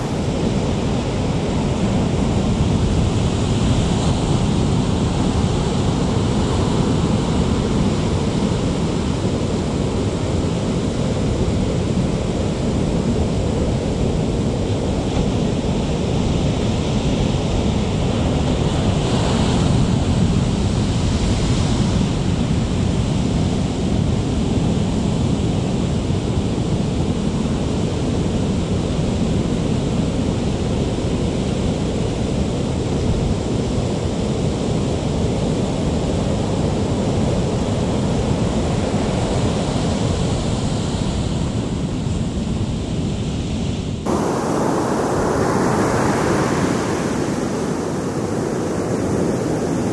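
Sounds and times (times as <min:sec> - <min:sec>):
ocean surf breaking: 0:00.0 - 0:00.4, 0:44.1 - 0:49.9
wind rumbling on microphone: 0:00.0 - 0:00.6, 0:44.1 - 0:49.9.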